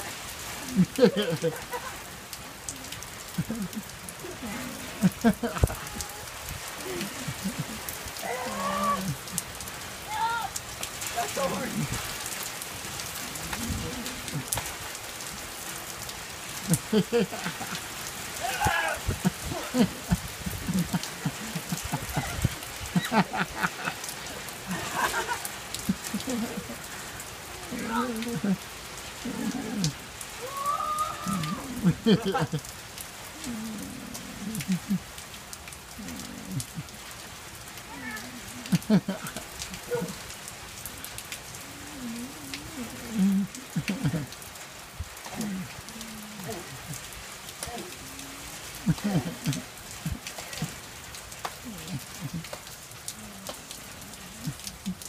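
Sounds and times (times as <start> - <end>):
big raindrops landing close: 0.0 - 55.0
heavy rain pouring: 0.0 - 55.0
sharp drips: 0.0 - 55.0
person's wavering call: 0.7 - 9.4, 18.4 - 25.3, 29.2 - 32.6.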